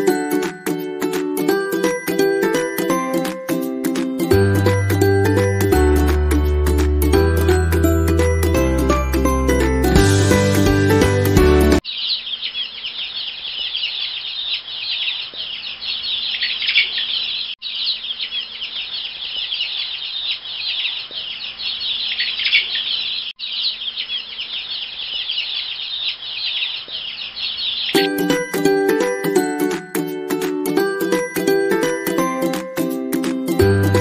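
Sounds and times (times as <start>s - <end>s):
chicks peeping: 10.3s - 31.9s.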